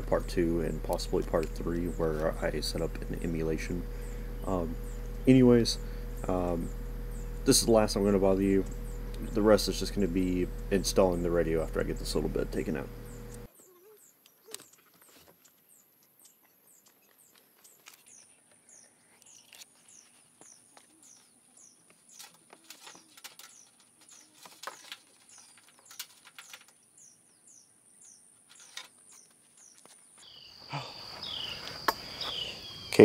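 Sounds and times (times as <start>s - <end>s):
steady high-pitched hiss: 0.0s - 13.5s
faint bird chirping: 0.1s - 33.0s.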